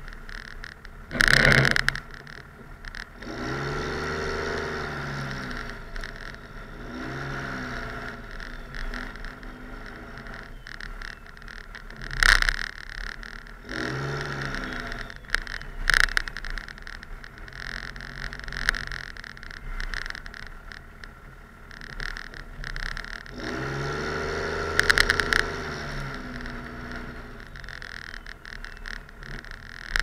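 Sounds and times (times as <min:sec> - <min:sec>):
crackling noise bursts: 0:00.0 - 0:30.0
diesel truck engine revving: 0:02.9 - 0:12.1, 0:13.2 - 0:15.6, 0:23.0 - 0:29.9.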